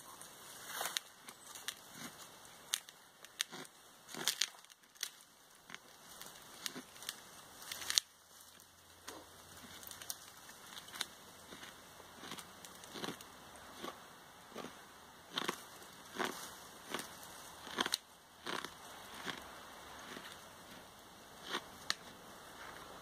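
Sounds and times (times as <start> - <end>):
wood fibres cracking and snapping: 0.6 - 23.0
knife cutting sapling: 0.8 - 5.8.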